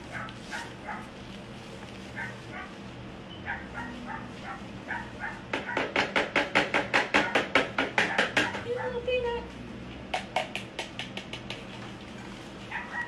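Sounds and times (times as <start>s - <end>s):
dog yipping: 0.1s - 1.1s, 2.2s - 2.7s, 3.4s - 5.9s, 12.7s - 13.0s.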